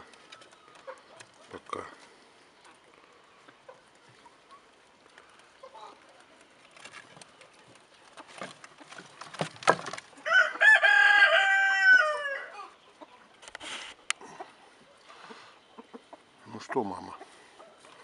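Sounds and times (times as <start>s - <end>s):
rooster crowing: 10.2s - 12.8s.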